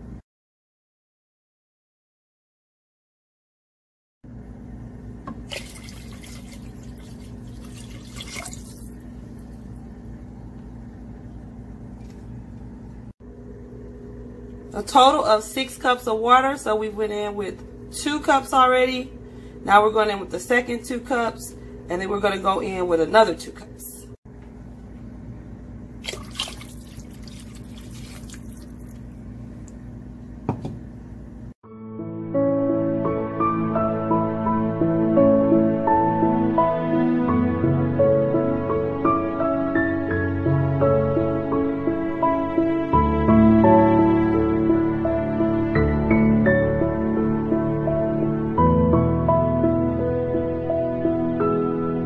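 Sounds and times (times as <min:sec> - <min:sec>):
steady low hum: 0:04.3 - 0:31.6
water pouring and splashing into pot: 0:05.4 - 0:09.5, 0:26.0 - 0:29.1.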